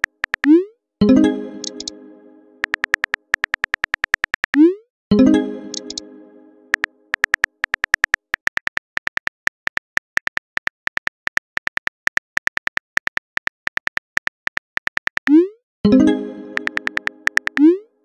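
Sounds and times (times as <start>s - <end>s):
phone keyboard clicks: 0.0s - 0.6s, 1.6s - 1.9s, 2.6s - 4.6s, 5.7s - 6.0s, 6.7s - 15.3s, 16.6s - 17.7s.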